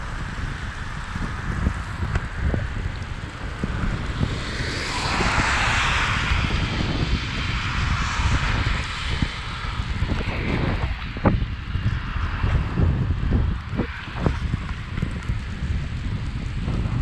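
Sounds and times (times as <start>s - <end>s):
wind buffeting microphone: 0.0s - 17.0s
passing vehicle rushing hiss: 3.4s - 12.9s.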